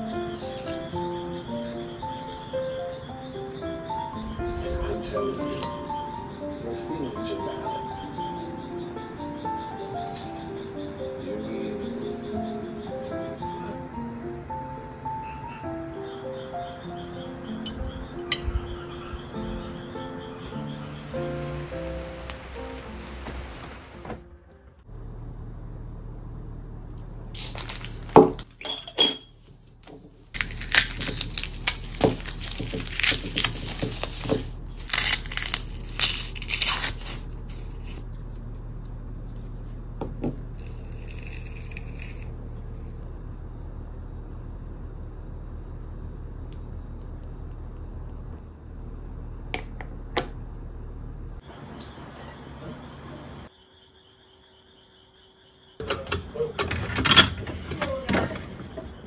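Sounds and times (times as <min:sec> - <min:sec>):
garlic skins crackling: 0:20.7 - 0:24.1, 0:26.9 - 0:28.4, 0:30.2 - 0:38.5, 0:39.3 - 0:43.0.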